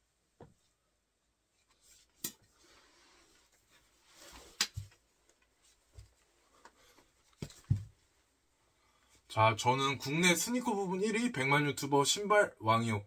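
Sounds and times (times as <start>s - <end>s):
soft thumps: 7.4s - 8.0s.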